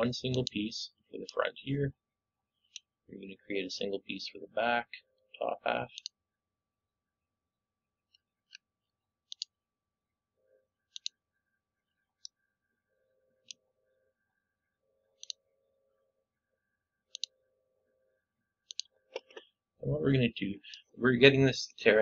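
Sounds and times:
computer mouse clicks: 9.3s - 9.5s, 10.9s - 11.2s, 15.2s - 15.4s, 17.1s - 17.3s, 18.7s - 19.5s
faint hum: 10.1s - 22.0s.

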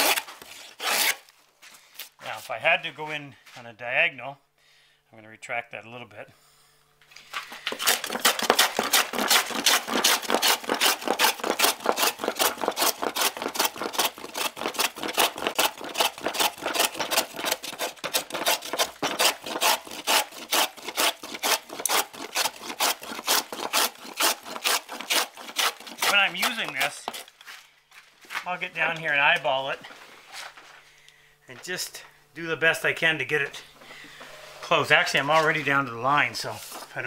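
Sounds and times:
hand plane cutting wood: 0.0s - 1.3s, 7.7s - 27.3s.

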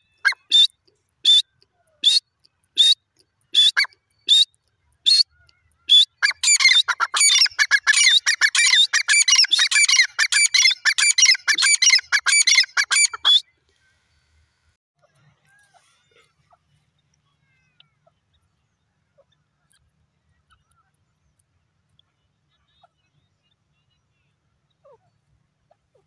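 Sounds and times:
francolin calling: 2.8s - 13.4s.

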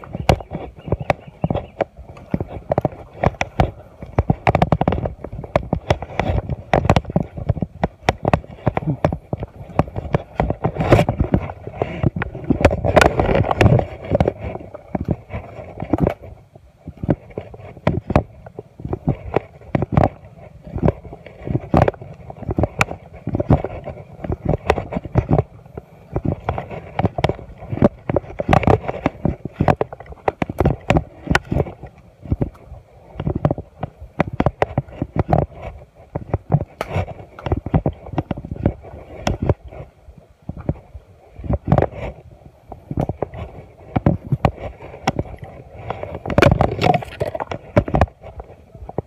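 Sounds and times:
footsteps on mud: 0.0s - 39.9s, 40.5s - 49.0s
microphone handling noise: 0.0s - 49.0s.

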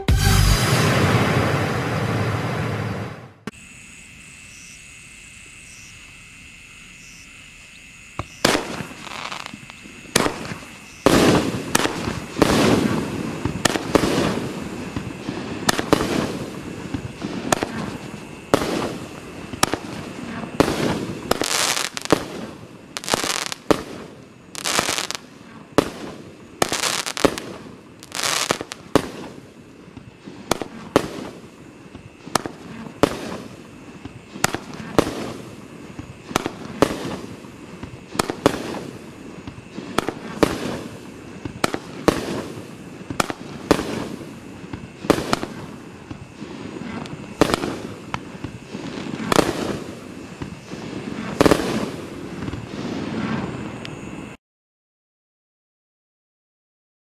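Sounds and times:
firework battery bangs: 0.0s - 3.8s, 8.2s - 29.4s.

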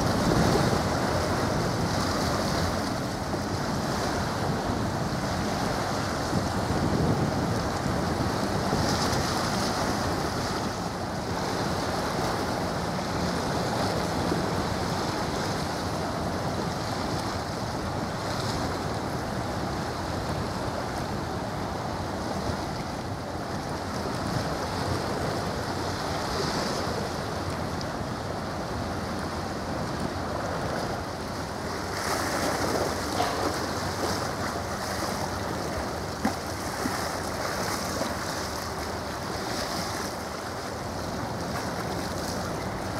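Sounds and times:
choppy sea water: 0.0s - 42.9s
wind noise on microphone: 0.0s - 42.9s.

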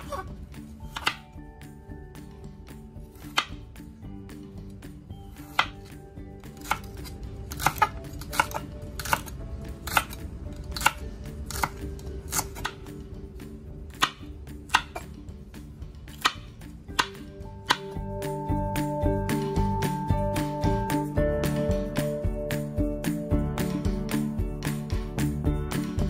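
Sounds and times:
faint background music: 0.0s - 26.0s
knife chopping on wooden board: 0.9s - 1.2s, 3.2s - 3.6s, 5.4s - 5.9s, 6.6s - 10.2s, 10.8s - 12.9s, 14.0s - 15.1s, 16.1s - 18.0s.

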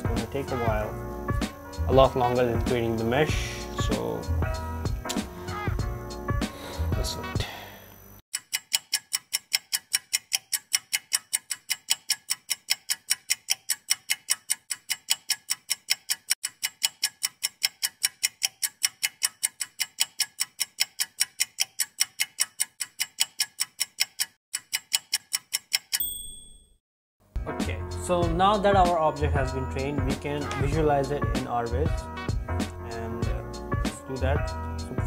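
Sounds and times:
clock ticking: 8.3s - 26.1s.

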